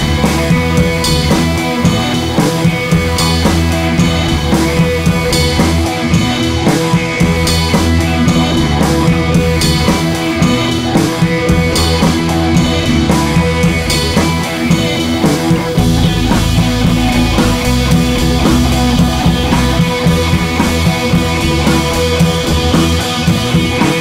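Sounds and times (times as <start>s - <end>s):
background music with steady beat: 0.0s - 24.0s.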